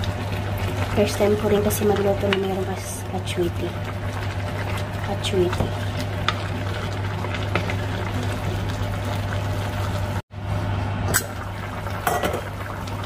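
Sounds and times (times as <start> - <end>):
sauce simmering in a pan: 0.0 - 10.2.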